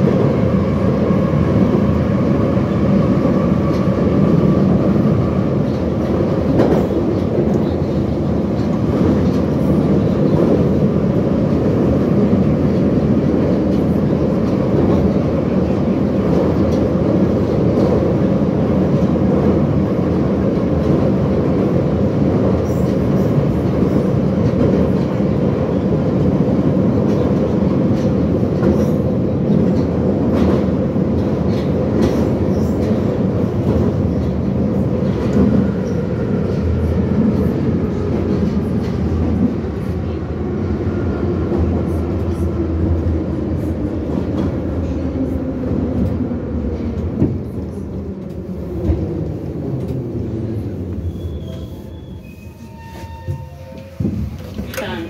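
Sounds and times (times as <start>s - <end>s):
rumble of wheels on rail: 0.0s - 55.0s
rail joint clicks: 5.6s - 10.8s, 22.4s - 40.2s, 43.8s - 55.0s
falling whines of braking train: 49.8s - 54.7s.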